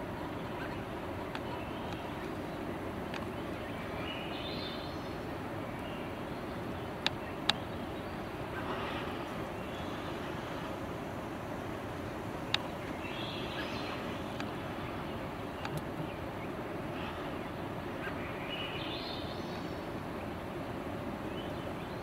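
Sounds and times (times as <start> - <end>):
faint bird calls: 0.0 - 22.0
outdoor background hiss: 0.0 - 22.0
sharp clicks: 15.6 - 15.9.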